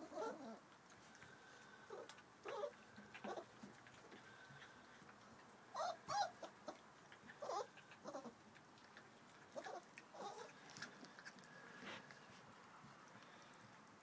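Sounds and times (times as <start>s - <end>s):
puppies whining and yipping: 0.0s - 0.7s, 1.9s - 4.8s, 5.7s - 8.4s, 9.4s - 11.3s.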